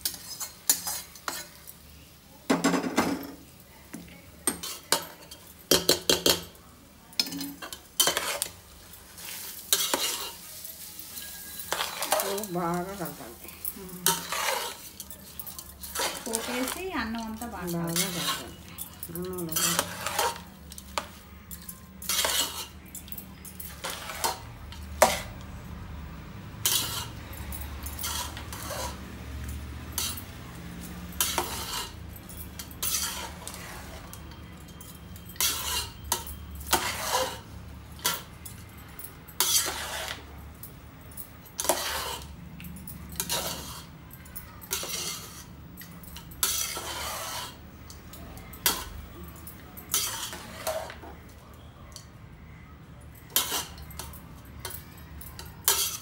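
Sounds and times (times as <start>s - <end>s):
spoon stirring rice in a pot: 0.0s - 1.8s, 3.4s - 25.5s, 26.5s - 52.1s, 53.2s - 56.0s
spoon clanking against metal pot: 2.5s - 8.5s, 9.7s - 10.4s, 13.6s - 25.4s, 31.2s - 51.2s, 53.3s - 56.0s.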